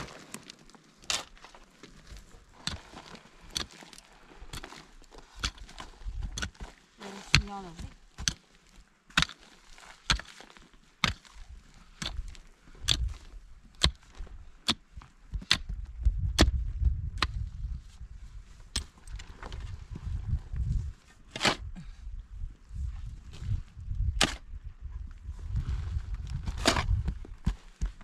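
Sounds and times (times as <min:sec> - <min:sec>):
pickaxe striking stony soil: 0:00.0 - 0:17.5, 0:18.7 - 0:19.2, 0:21.3 - 0:21.8, 0:24.0 - 0:24.5, 0:26.4 - 0:28.0.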